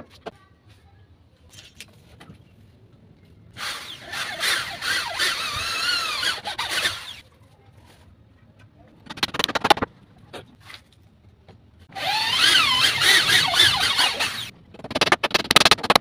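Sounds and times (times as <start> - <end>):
woodworking tool cutting wood: 3.6 - 7.2, 11.9 - 16.0.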